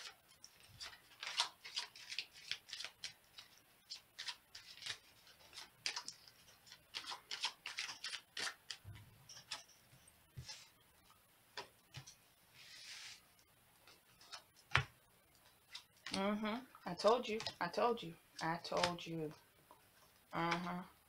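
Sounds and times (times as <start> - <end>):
cards being shuffled by hand: 0.0 - 8.8.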